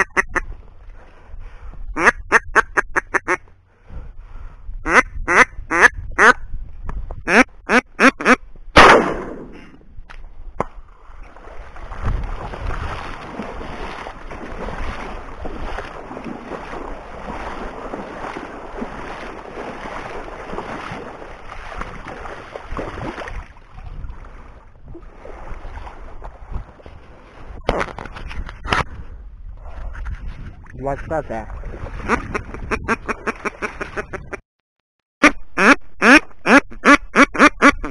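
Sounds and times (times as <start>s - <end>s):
duck quacking: 0.0s - 0.4s, 2.0s - 3.4s, 4.8s - 6.4s, 7.3s - 8.4s, 32.1s - 34.4s, 35.2s - 37.9s
wading through water and reeds: 0.0s - 34.4s
shotgun firing: 8.8s - 9.8s.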